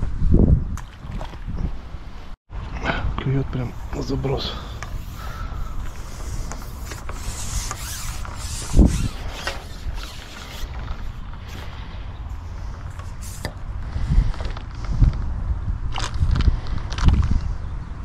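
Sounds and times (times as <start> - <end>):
fishing pole creaks and clicks: 4.7 - 11.8, 12.8 - 13.6, 15.9 - 17.4.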